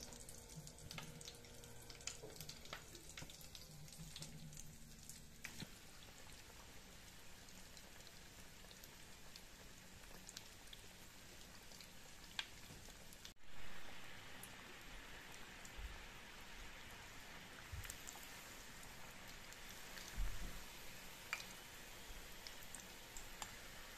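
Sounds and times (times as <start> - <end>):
food deep-frying in oil: 0.0 - 23.9.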